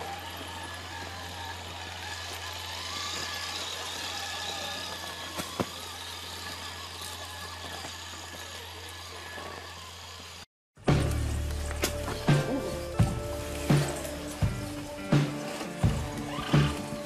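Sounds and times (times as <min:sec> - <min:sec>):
electric motor whining: 0:00.0 - 0:17.0
wheels over loose stones: 0:00.0 - 0:17.0.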